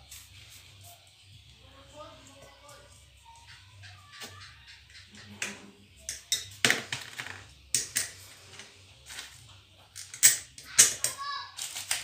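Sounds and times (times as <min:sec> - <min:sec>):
clicks of small parts handled: 0:07.7 - 0:12.0.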